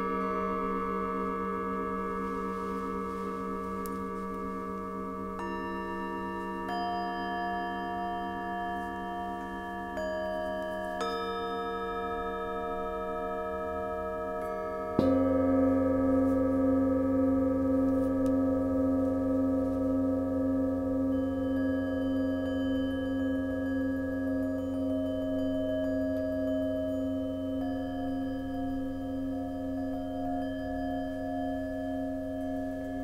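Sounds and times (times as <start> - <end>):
singing bowls ringing: 0.0 - 33.0
deep strike on large bowl: 14.5 - 21.2.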